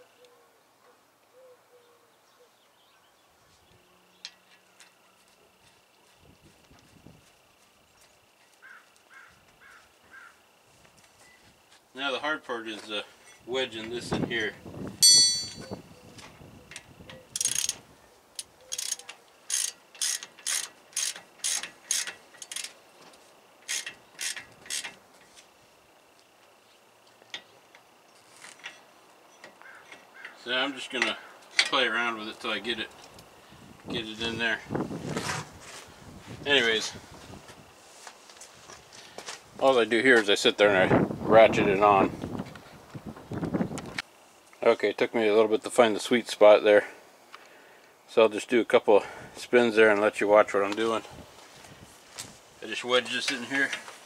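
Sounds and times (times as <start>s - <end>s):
low hooting bird notes: 0.0s - 5.6s
hand ratchet clicking: 17.3s - 17.8s, 18.4s - 22.8s, 23.6s - 25.0s.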